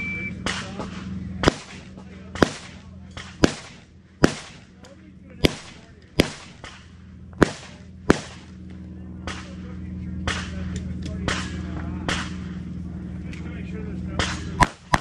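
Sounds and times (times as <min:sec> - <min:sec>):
steady low hum: 0:00.0 - 0:15.0
sharp gunshots: 0:00.4 - 0:04.8, 0:05.4 - 0:08.6, 0:10.2 - 0:12.6, 0:14.2 - 0:15.0.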